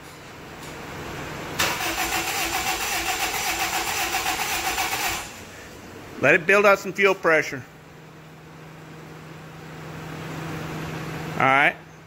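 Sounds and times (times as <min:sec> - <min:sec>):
starter motor cranking engine: 0:01.6 - 0:05.4.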